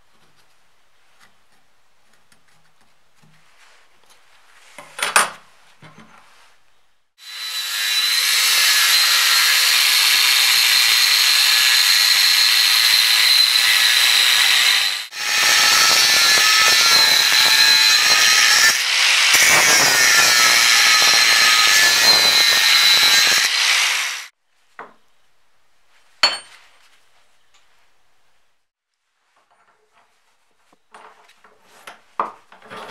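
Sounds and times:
angle grinder cutting steel: 0:07.2 - 0:24.3.

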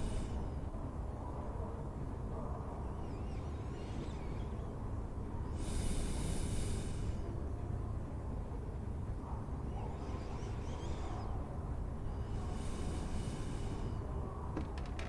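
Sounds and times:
faint chirps: 0:00.0 - 0:00.8, 0:02.3 - 0:07.4, 0:09.2 - 0:14.5
soft breath-like hiss: 0:00.0 - 0:00.8, 0:05.4 - 0:07.6, 0:12.0 - 0:14.4.

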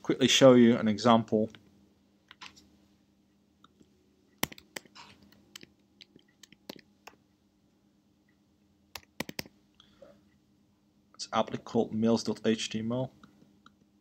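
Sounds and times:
computer keyboard key presses: 0:04.4 - 0:04.9, 0:09.0 - 0:09.5.

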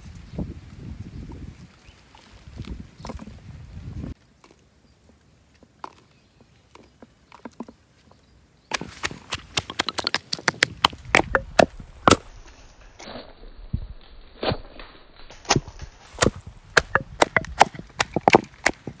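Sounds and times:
pestle pounding in wooden mortar: 0:08.7 - 0:12.2, 0:16.2 - 0:19.0.

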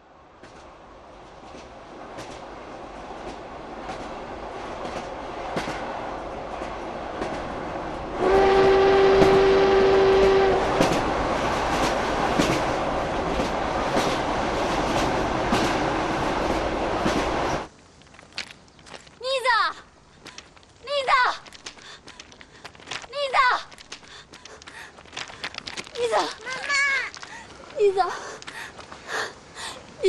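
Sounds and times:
train rumbling past: 0:00.1 - 0:17.7
train horn blast: 0:08.2 - 0:10.9
wheels clattering over rail joints: 0:10.8 - 0:19.5, 0:20.2 - 0:29.2.

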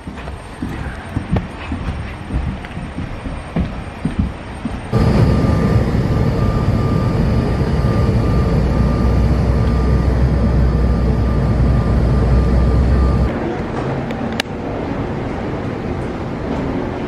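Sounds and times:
thin steady whine: 0:04.9 - 0:13.3
jet engine cabin rumble: 0:04.9 - 0:13.4.

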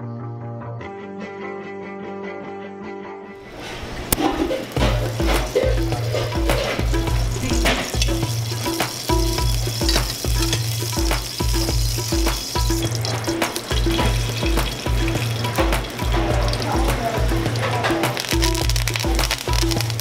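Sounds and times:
hot oil sizzling in a pan: 0:03.5 - 0:20.0
music with steady bass beat: 0:04.8 - 0:20.0.

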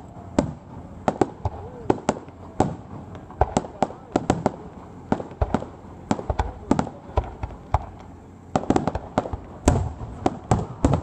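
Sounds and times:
firework shells bursting: 0:00.0 - 0:11.0.

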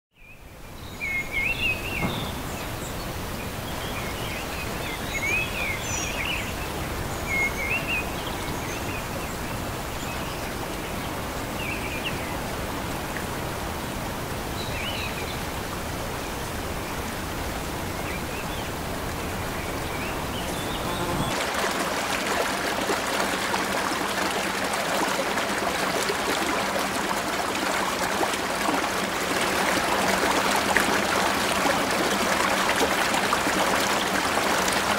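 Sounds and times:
birds chirping: 0:00.7 - 0:09.1, 0:18.1 - 0:21.4
stream running over stones: 0:00.8 - 0:34.9.

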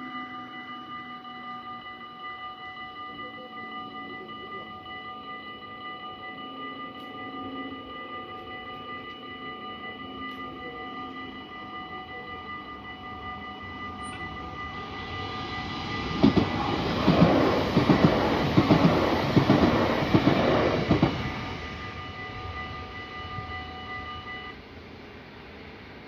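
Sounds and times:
level crossing bells ringing: 0:00.0 - 0:24.6
train wheels clattering: 0:14.0 - 0:22.6.

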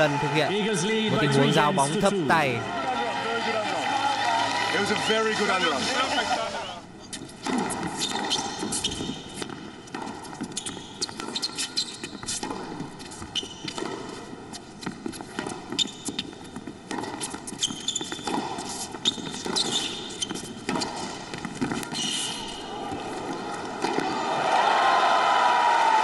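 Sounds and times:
low arena background: 0:00.0 - 0:07.7.

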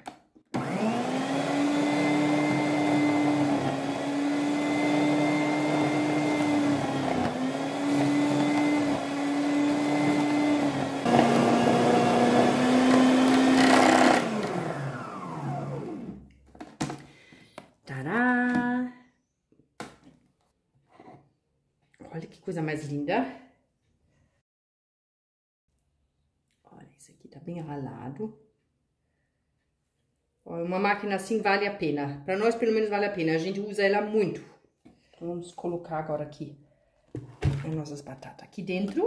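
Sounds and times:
food processor motor humming: 0:00.5 - 0:16.3.

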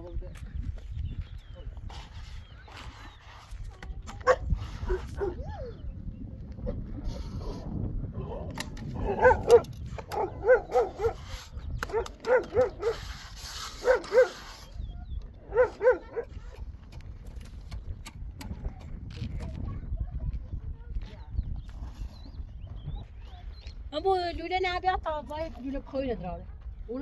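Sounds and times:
dog barking: 0:04.2 - 0:05.4, 0:09.0 - 0:11.2, 0:11.9 - 0:13.0, 0:13.8 - 0:14.4, 0:15.5 - 0:16.3.

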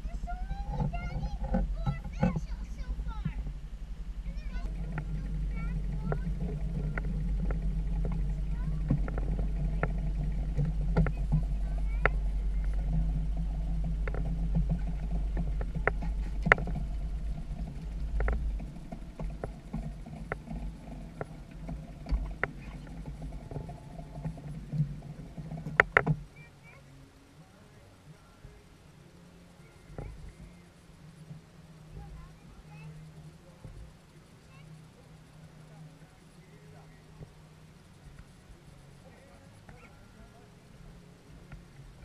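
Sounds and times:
small outboard motor running: 0:00.0 - 0:42.0
sharp clicks and knocks: 0:04.2 - 0:26.3.

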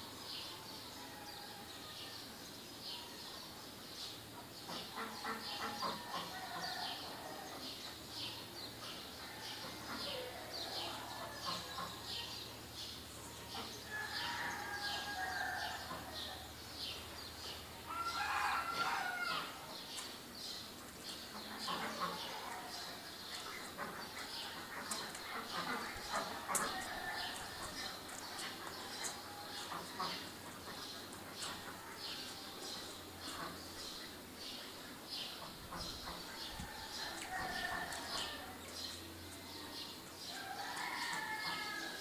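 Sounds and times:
small birds chirping: 0:01.8 - 0:42.0
rooster crowing: 0:13.9 - 0:16.5, 0:17.8 - 0:19.7, 0:36.5 - 0:38.6, 0:40.3 - 0:42.0.

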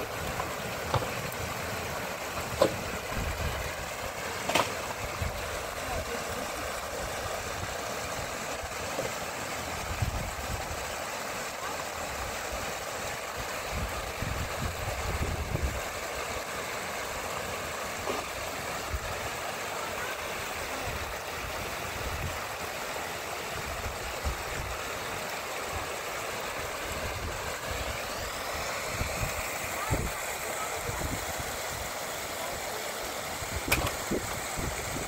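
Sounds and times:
heavy rain: 0:17.6 - 0:35.0.

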